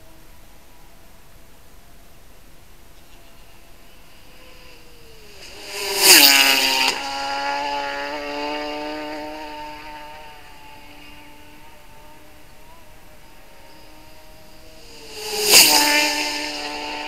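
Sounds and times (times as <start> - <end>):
racing motorcycle passing: 3.0 - 17.0.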